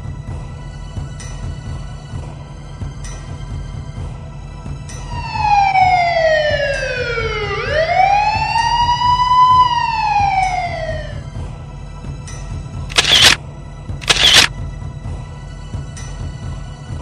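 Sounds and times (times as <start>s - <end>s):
police siren wailing: 5.2s - 11.3s.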